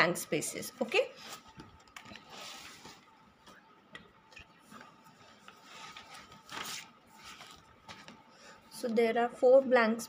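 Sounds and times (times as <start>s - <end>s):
paper rustling and pages turning: 0.9s - 8.3s.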